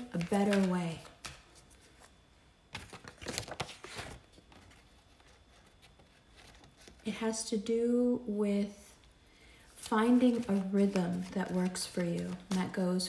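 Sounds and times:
deck of cards being handled: 0:00.0 - 0:02.1.

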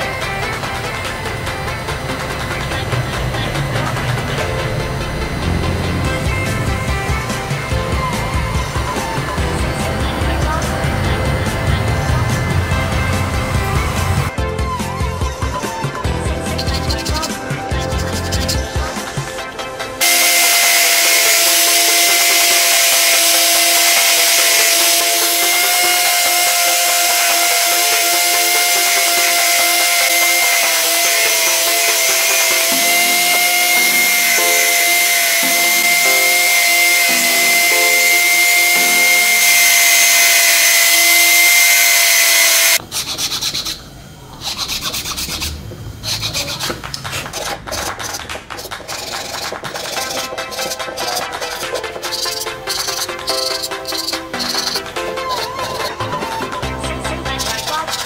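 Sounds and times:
plastic scraping on concrete: 0:44.4 - 0:56.6.

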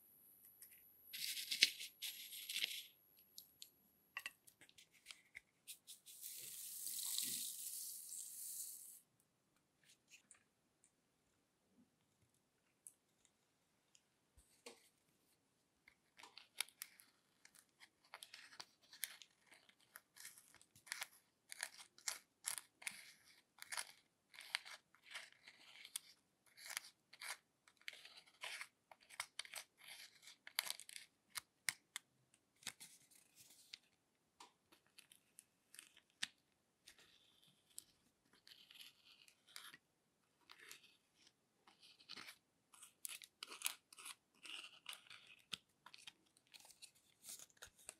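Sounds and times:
spatula scraping eyeshadow: 0:40.5 - 0:47.7.

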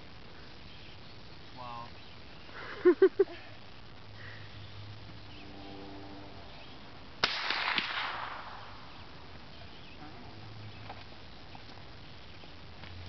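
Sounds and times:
rifle shot with echo: 0:07.2 - 0:08.9.

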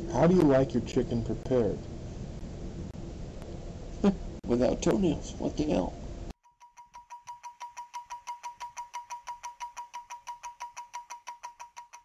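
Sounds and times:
stopwatch ticking rapidly: 0:06.4 - 0:12.0.

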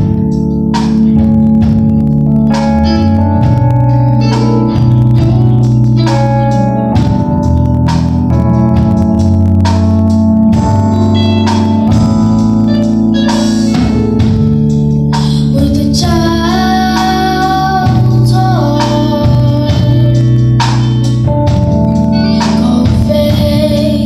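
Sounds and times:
bass: 0:00.0 - 0:24.0
keyboard organ chords: 0:00.0 - 0:24.0
drum hits: 0:07.0 - 0:15.4.

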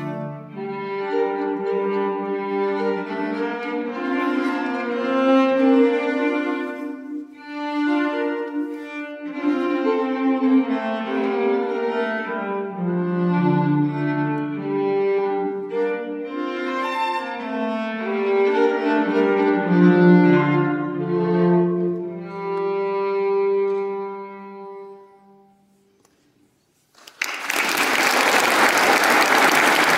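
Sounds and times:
violin and cello playing: 0:00.0 - 0:25.8
audience applause: 0:27.0 - 0:29.9.

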